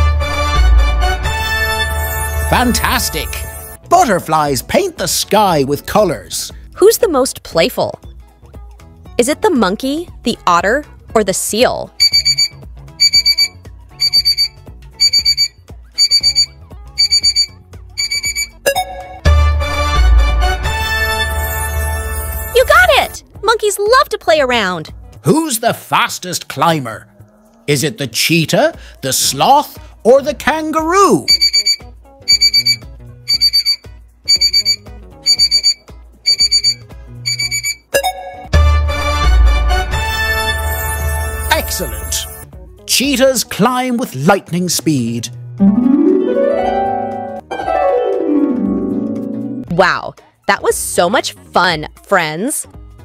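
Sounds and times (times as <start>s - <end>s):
quiet background music: 1.1s - 53.0s
alarm clock beeping: 1.7s - 3.8s, 12.0s - 18.8s, 31.3s - 37.9s.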